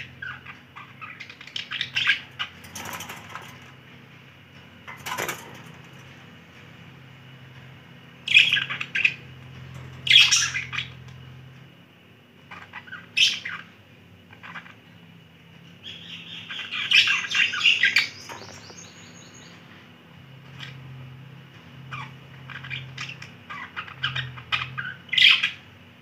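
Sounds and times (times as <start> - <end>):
budgerigars chirping and warbling: 0.0 - 3.8, 4.9 - 6.2, 8.3 - 11.3, 12.5 - 14.9, 15.8 - 19.6, 21.9 - 25.6.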